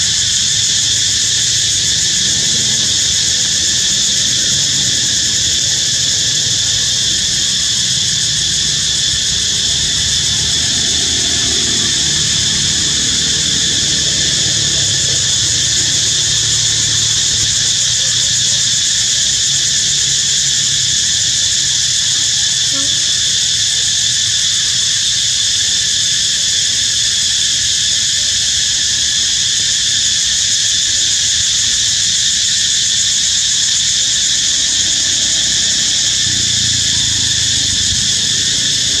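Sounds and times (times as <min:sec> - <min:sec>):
insect chorus drone: 0:00.0 - 0:39.0.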